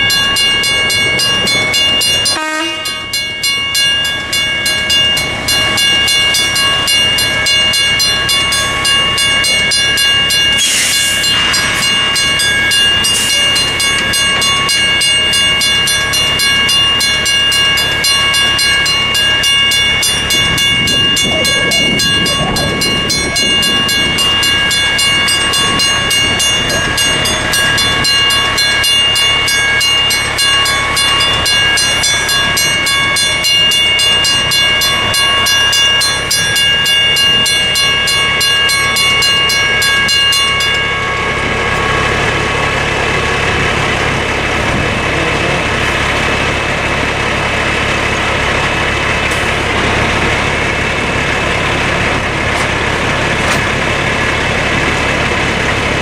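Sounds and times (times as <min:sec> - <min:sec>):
mechanical crossing bell ringing: 0:00.0 - 0:44.5
truck engine idling: 0:00.0 - 0:56.0.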